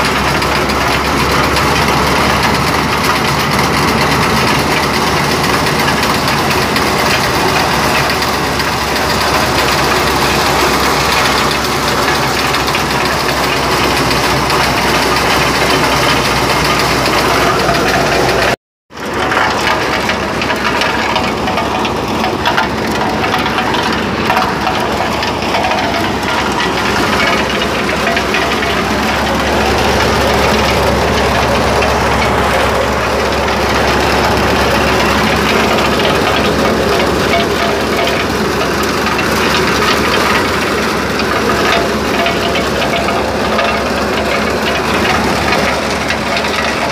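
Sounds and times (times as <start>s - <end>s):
corn sheller running: 0.0s - 46.9s.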